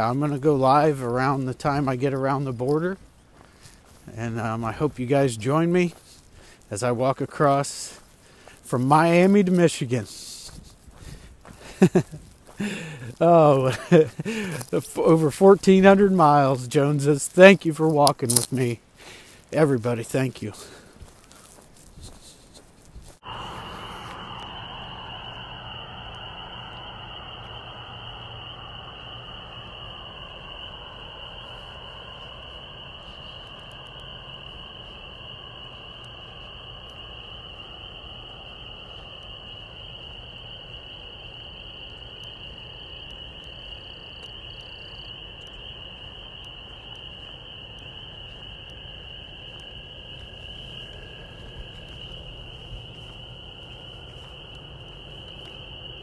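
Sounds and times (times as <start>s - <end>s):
low hum: 21.0s - 56.0s.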